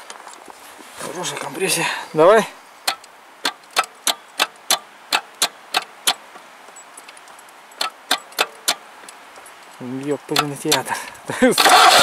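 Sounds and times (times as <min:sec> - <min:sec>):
starter solenoid clicking: 0:11.6 - 0:12.0.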